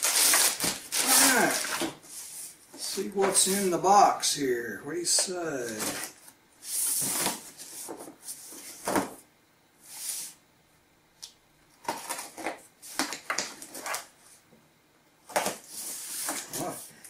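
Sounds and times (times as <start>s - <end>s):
knife cutting packing tape: 0.0s - 1.9s.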